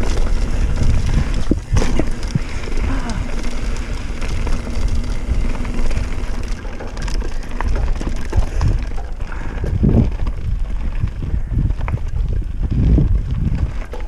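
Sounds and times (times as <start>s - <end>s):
bike rattling over bumps: 0.0s - 14.0s
tyres rolling on gravel: 0.0s - 14.0s
wind noise on microphone: 0.0s - 14.0s.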